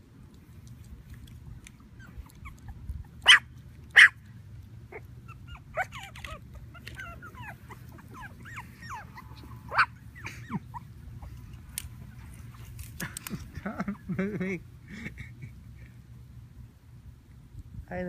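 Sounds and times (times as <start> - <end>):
puppies yipping: 1.7 - 12.8
puppies whining and squealing: 1.8 - 3.4, 4.8 - 11.6.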